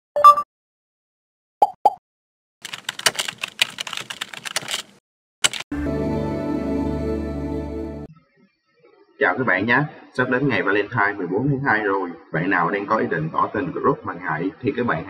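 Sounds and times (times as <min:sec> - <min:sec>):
keyboard typing clicks: 0:02.6 - 0:05.7.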